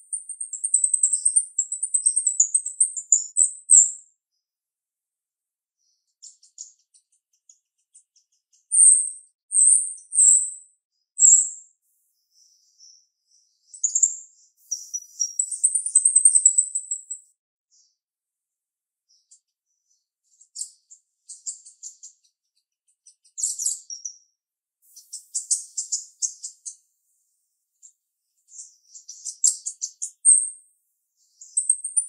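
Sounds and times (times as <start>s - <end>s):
bird chirping and chattering: 0.1s - 3.9s, 6.2s - 10.6s, 11.2s - 11.6s, 13.7s - 17.3s, 20.4s - 24.2s, 24.9s - 26.8s, 28.5s - 30.6s, 31.2s - 32.0s.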